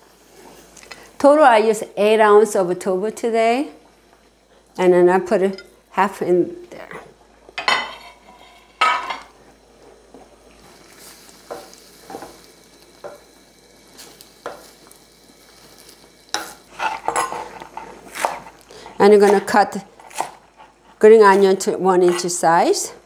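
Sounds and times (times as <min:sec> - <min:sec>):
faint hiss: 0:08.2 - 0:16.7.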